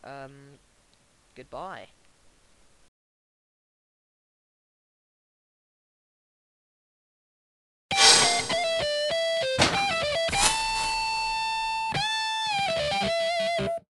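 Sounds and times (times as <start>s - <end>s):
electric guitar lead: 11.4s - 13.8s.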